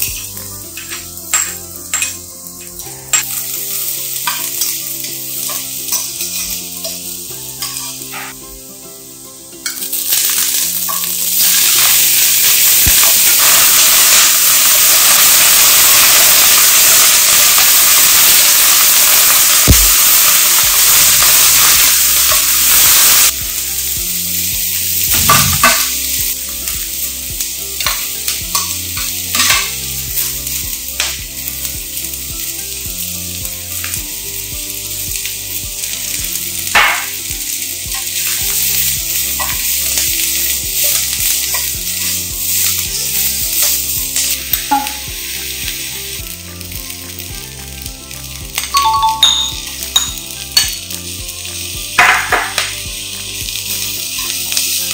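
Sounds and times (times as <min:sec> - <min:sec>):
food sizzling in a wok: 0:00.0 - 0:54.9
metal spatula scraping a wok: 0:02.8 - 0:08.6.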